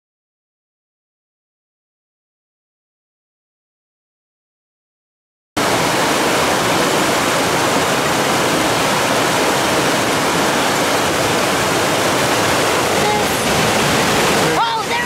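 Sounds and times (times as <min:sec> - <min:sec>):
river rushing over rapids: 0:05.6 - 0:15.0.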